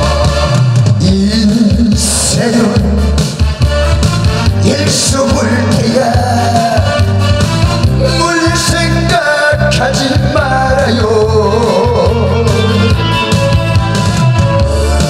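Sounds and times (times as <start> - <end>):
backing track with bass and drums: 0.0 - 15.0
man singing into microphone: 1.0 - 3.4, 4.6 - 7.2, 8.0 - 13.0.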